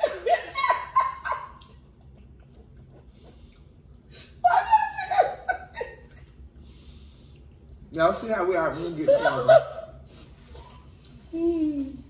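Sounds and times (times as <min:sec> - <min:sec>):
women laughing: 0:00.0 - 0:01.7, 0:04.2 - 0:06.4, 0:08.9 - 0:10.0.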